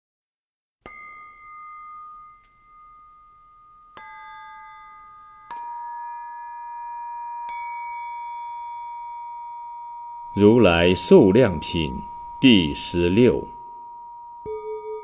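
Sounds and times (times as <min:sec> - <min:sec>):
struck chime tones: 0:08.4 - 0:15.0.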